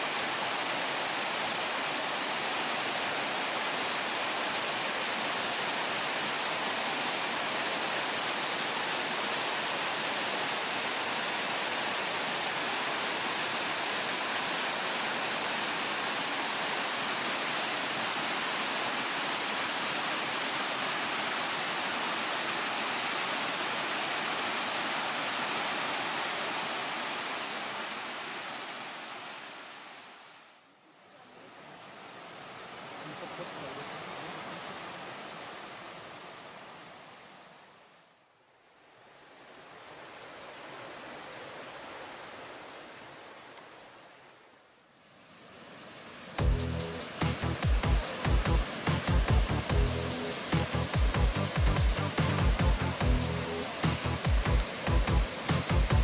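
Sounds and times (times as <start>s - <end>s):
water rushing over rocks: 0.0s - 30.4s, 31.5s - 37.6s, 45.2s - 56.0s.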